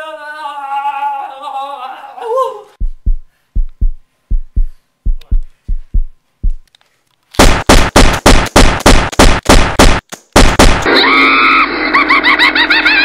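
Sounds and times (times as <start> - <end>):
heartbeat thumps: 2.8 - 6.7
rapid gunfire: 7.4 - 10.9.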